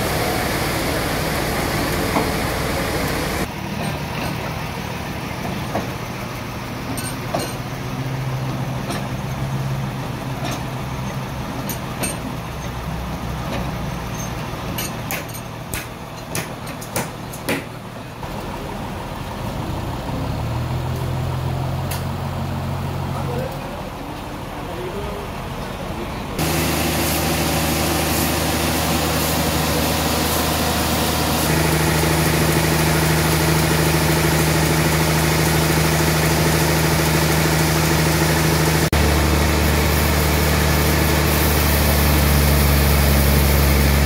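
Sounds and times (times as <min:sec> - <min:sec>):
forklift engine running: 0:00.0 - 0:16.6, 0:17.2 - 0:44.0
log carriage knocks and clanks: 0:06.9 - 0:07.7.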